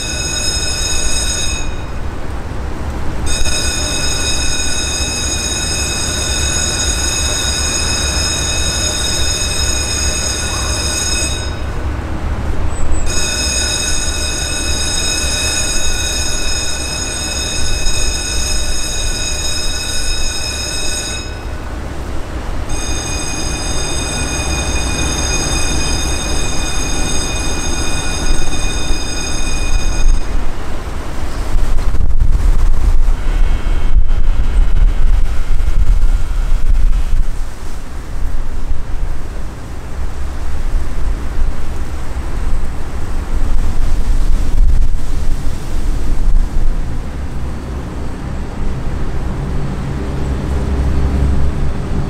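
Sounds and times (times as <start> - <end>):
warning bell ringing: 0.0 - 2.2, 3.2 - 12.2, 12.9 - 30.6.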